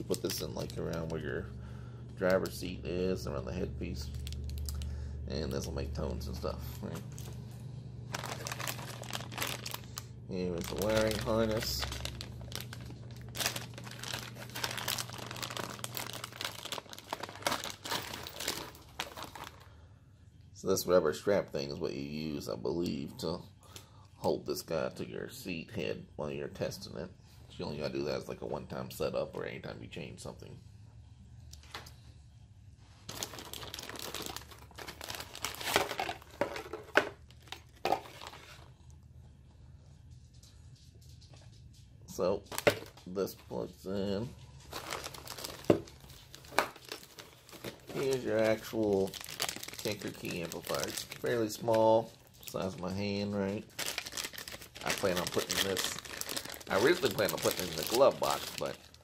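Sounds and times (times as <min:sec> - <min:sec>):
plastic bag crinkling: 0:00.0 - 0:01.4, 0:03.9 - 0:05.0, 0:08.0 - 0:19.8, 0:33.0 - 0:38.8, 0:42.4 - 0:43.1, 0:44.5 - 0:59.0.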